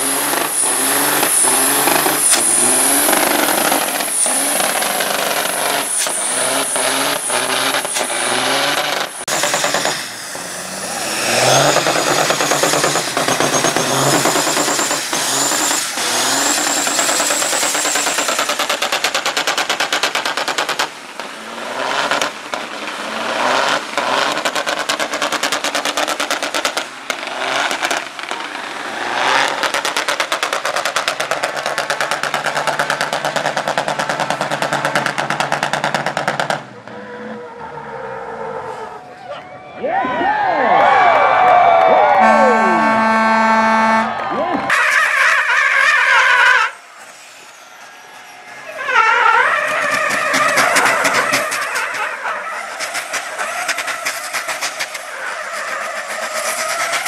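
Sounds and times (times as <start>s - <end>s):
truck engines revving high: 0.0s - 57.0s
rattling exhaust beat: 42.2s - 44.0s, 48.9s - 55.0s
tyres spinning: 46.2s - 57.0s.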